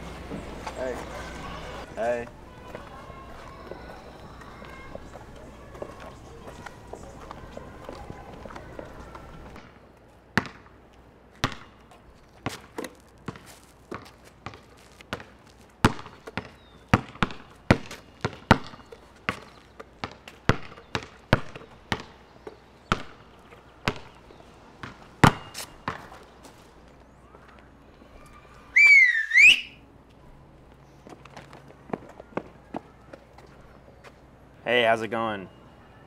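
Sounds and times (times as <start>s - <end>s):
basketball bouncing on concrete: 10.4s - 10.8s, 11.4s - 26.2s.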